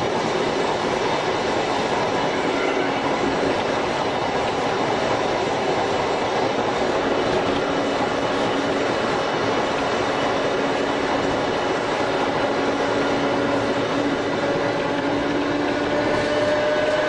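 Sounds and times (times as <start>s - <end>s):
electric train running noise: 0.0s - 17.0s.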